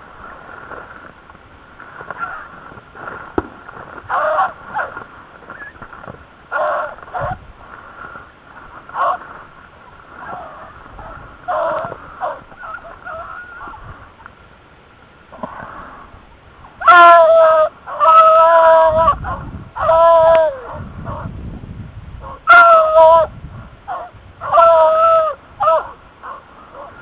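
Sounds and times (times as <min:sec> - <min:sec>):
beagles baying: 0:02.0 - 0:02.6, 0:04.0 - 0:05.8, 0:06.5 - 0:07.4, 0:08.9 - 0:09.4, 0:10.2 - 0:13.7, 0:22.2 - 0:27.0
dogs yelping: 0:04.1 - 0:05.0, 0:10.2 - 0:13.3.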